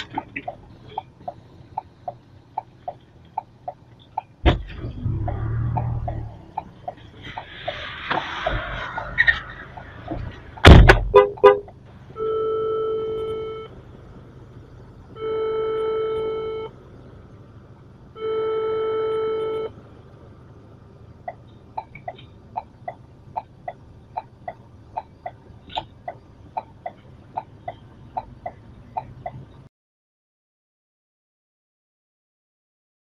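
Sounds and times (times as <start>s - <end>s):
car indicator ticking: 0.0s - 4.5s, 5.7s - 7.1s, 10.1s - 11.9s, 21.2s - 29.7s
loud knocks: 10.1s - 11.2s
car horn honking: 10.8s - 13.8s, 15.1s - 16.8s, 18.1s - 19.8s.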